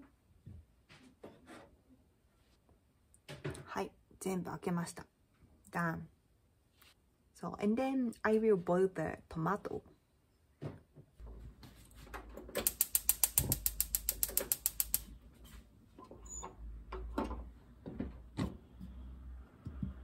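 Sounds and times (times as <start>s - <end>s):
gas hob igniter clicking: 12.4s - 15.2s.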